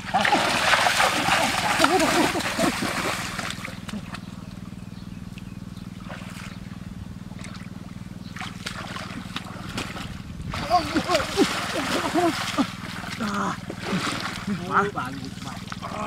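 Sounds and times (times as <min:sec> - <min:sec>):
water splashing: 0:00.0 - 0:04.2, 0:08.4 - 0:16.0
steady low hum: 0:00.0 - 0:16.0.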